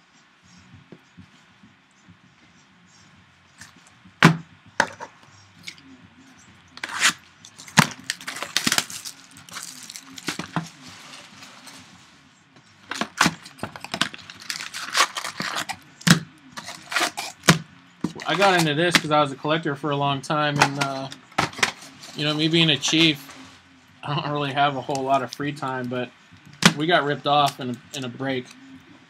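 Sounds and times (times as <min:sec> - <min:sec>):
plastic shrink-wrap crinkling: 0:06.8 - 0:12.0, 0:12.9 - 0:15.8, 0:16.6 - 0:17.5, 0:18.2 - 0:19.0.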